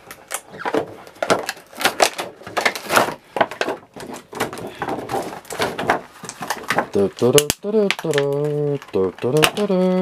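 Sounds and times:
plastic packaging crinkling: 0.0s - 10.0s.

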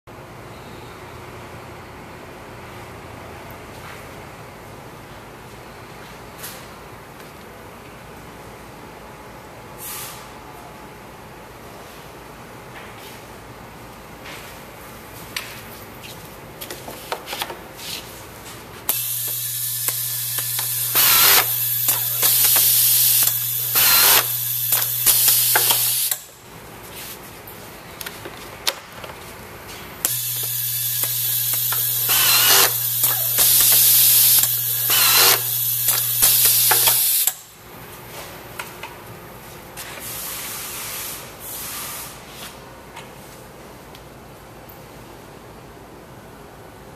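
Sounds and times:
pneumatic cylinders hissing and clacking: 18.9s - 26.3s, 30.0s - 37.5s
screwdriver driving screws: 32.1s - 32.8s.

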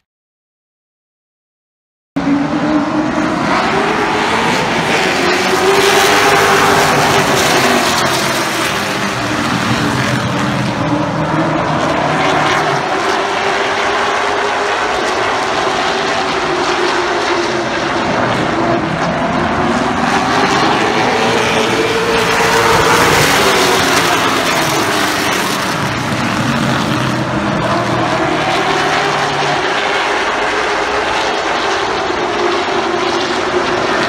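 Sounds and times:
stock car engines droning: 2.2s - 34.0s.

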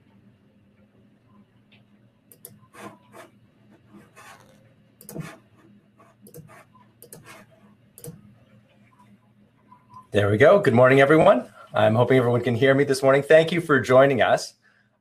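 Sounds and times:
low steady hum: 0.0s - 15.0s
rubbing and rustling near microphone: 2.8s - 7.8s.

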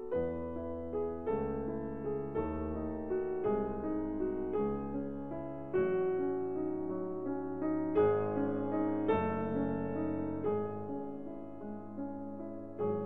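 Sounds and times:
piano chords: 0.0s - 13.0s.

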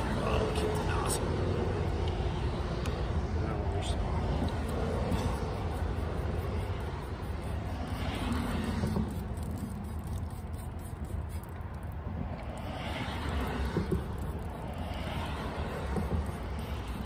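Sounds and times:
steady low rumble: 0.0s - 17.0s
spray bottle spritzing: 4.7s - 17.0s.

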